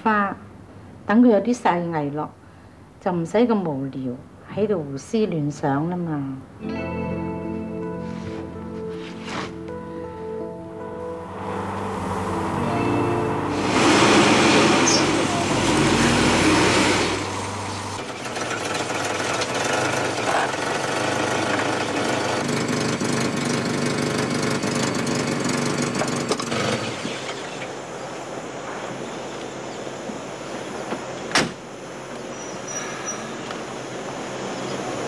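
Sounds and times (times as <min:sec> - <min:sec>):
car engine running: 0:11.5 - 0:26.4.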